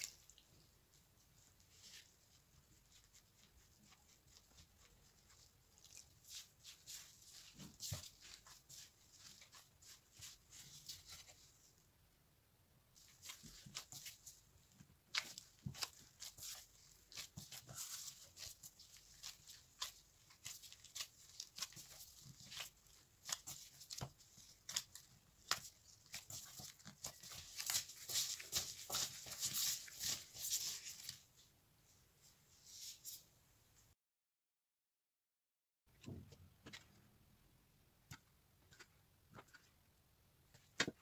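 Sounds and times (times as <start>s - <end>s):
dough kneading crackles: 0.0s - 11.9s, 13.0s - 31.5s.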